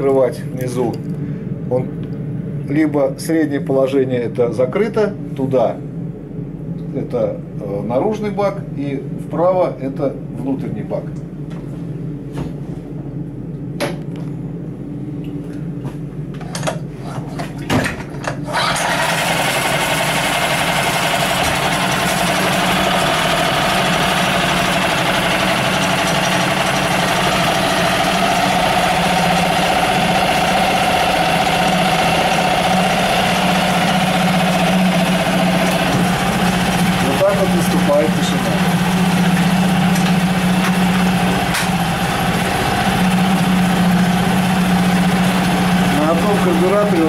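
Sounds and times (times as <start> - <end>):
outboard motor running: 18.5 - 47.0.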